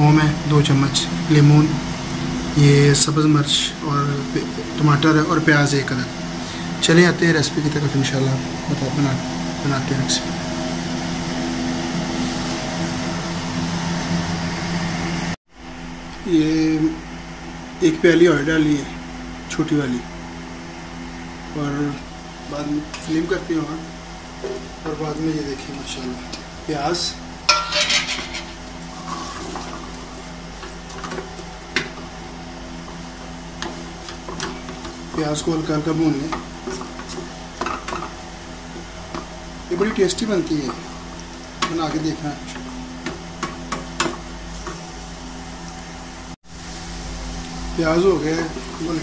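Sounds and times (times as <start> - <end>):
fan humming: 0.0 - 49.0
onions sizzling in oil: 27.5 - 49.0.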